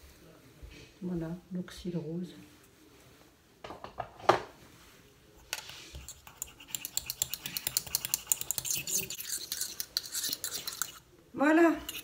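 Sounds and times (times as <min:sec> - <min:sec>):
metal stirrer scraping a pot: 0:05.6 - 0:11.1, 0:11.8 - 0:12.0.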